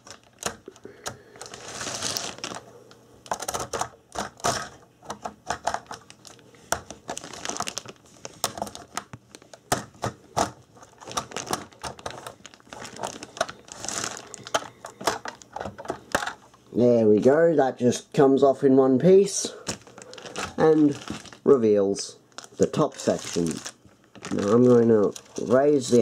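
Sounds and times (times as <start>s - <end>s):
plastic scraping: 1.4s - 2.6s, 3.2s - 16.4s, 19.6s - 21.5s, 22.4s - 26.0s.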